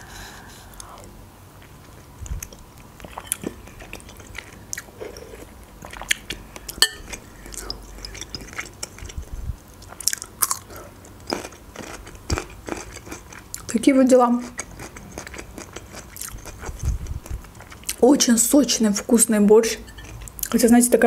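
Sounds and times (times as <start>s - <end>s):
chewing and slurping: 1.6s - 13.7s, 14.4s - 18.0s
spoon clinking glass bowl: 6.8s - 7.2s, 19.9s - 20.2s.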